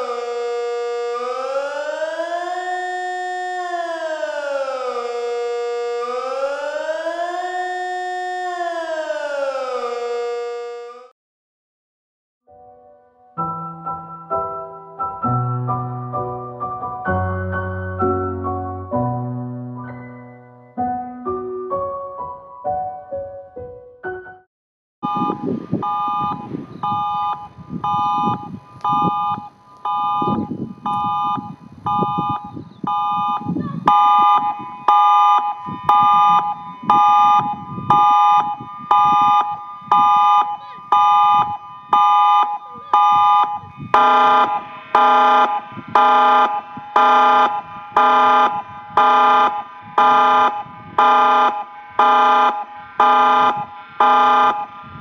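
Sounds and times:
pulsed electronic warning siren: 0.0s - 11.1s, 25.0s - 55.0s.

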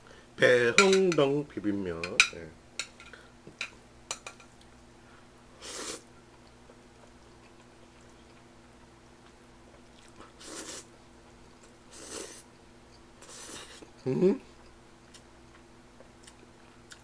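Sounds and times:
steady low hum: 0.0s - 17.0s
person slurping noodles: 5.6s - 6.0s, 10.4s - 10.9s, 11.9s - 12.4s.

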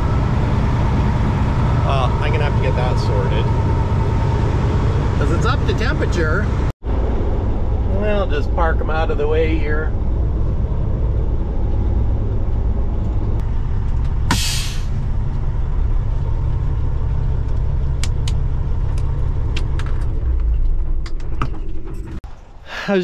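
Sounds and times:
truck engine rumbling: 0.0s - 23.0s
air hiss: 14.3s - 14.9s.

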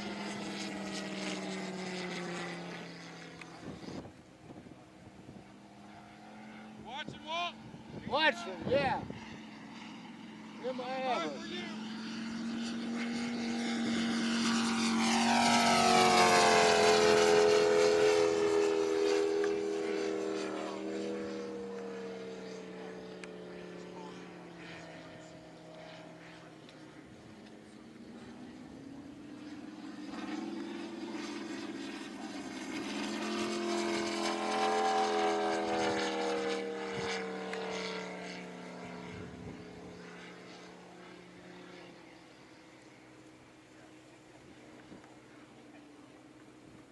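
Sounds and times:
model plane engine flying past: 0.0s - 46.9s.

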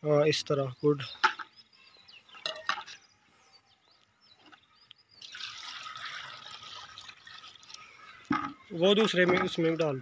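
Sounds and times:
water pouring into a plastic bowl: 5.1s - 10.0s
bucket knocking: 8.3s - 10.0s.

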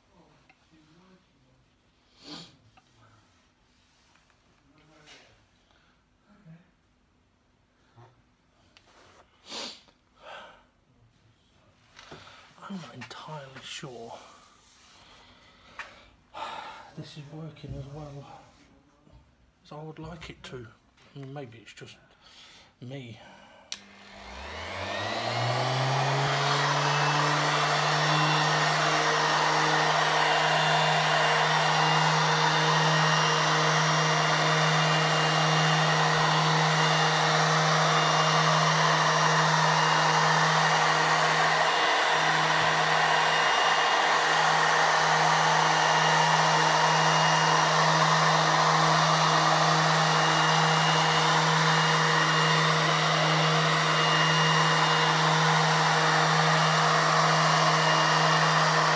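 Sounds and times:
electric sander whining: 23.8s - 58.9s.

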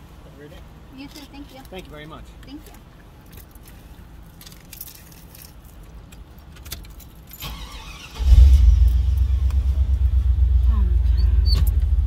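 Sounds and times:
car engine rumbling: 0.0s - 12.0s
keys rattling: 3.2s - 7.6s
car starter cranking: 6.6s - 10.0s.

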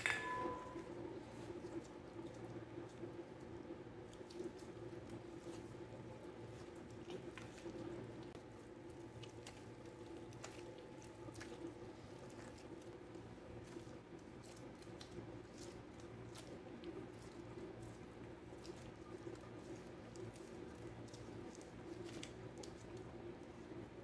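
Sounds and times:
low hum: 0.0s - 8.6s
dough squishing being kneaded: 0.0s - 24.0s.

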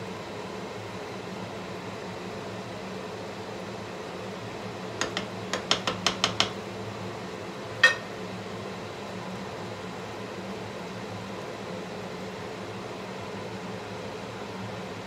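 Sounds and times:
range hood fan humming: 0.0s - 15.0s
spatula clacking on a plate: 5.0s - 6.6s, 7.8s - 8.1s
wooden spatula knocking a pan: 5.0s - 6.6s, 7.8s - 8.1s.

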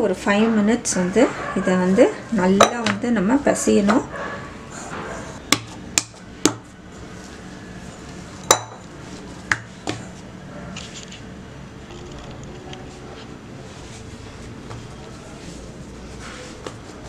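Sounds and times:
dough kneaded by hand: 12.9s - 17.0s.

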